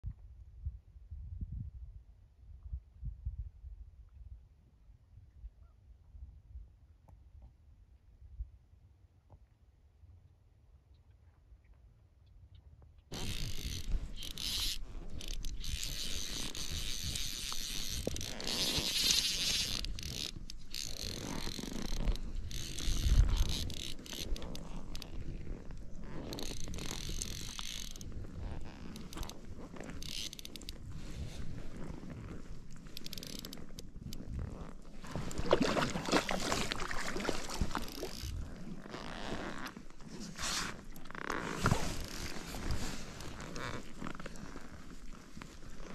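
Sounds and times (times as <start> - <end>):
fly reel ratcheting buzz: 13.1 - 25.1, 26.4 - 28.0, 30.0 - 30.7
fishing line ticks and rustling: 13.1 - 45.9
fish splashing at water surface: 35.0 - 38.4.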